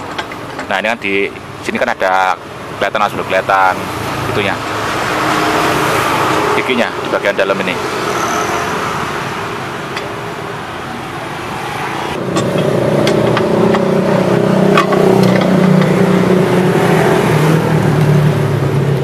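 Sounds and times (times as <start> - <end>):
vehicle engine running: 12.2 - 19.0.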